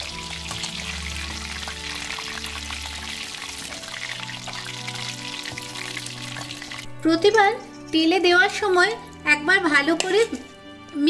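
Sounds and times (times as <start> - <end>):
chicken deep-frying in oil: 0.0 - 7.7
soft background music: 0.0 - 11.0.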